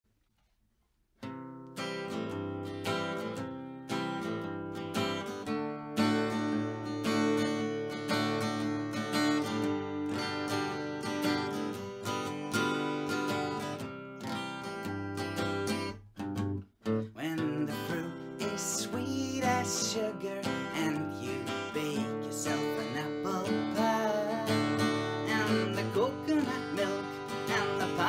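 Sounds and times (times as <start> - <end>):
acoustic guitar strumming: 1.2 - 28.0.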